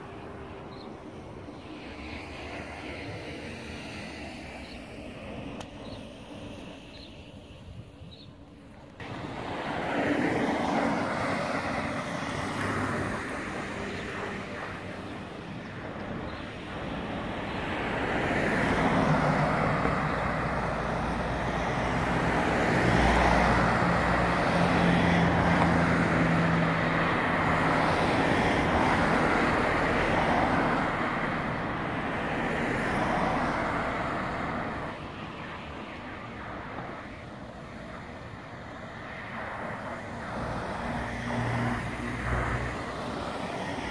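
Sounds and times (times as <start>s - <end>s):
cars driving past: 8.8s - 43.9s.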